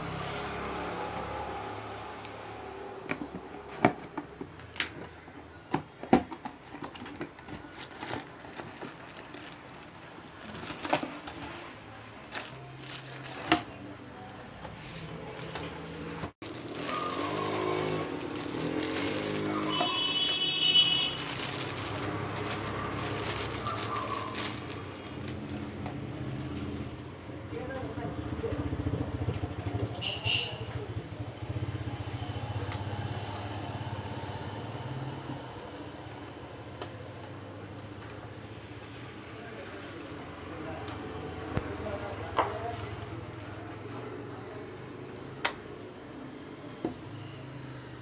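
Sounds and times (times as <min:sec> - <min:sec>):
plastic wrapping crinkling: 0:06.4 - 0:11.6, 0:12.2 - 0:13.8, 0:16.4 - 0:26.2.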